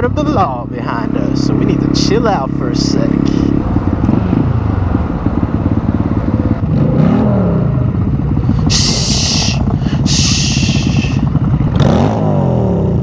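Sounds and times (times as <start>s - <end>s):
motorcycle engine revving: 0.0s - 13.0s
motorcycle engines idling: 0.0s - 13.0s.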